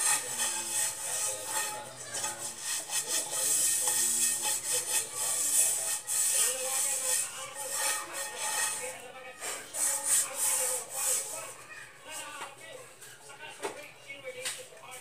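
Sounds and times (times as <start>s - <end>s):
hot oil sizzling: 0.0s - 8.9s.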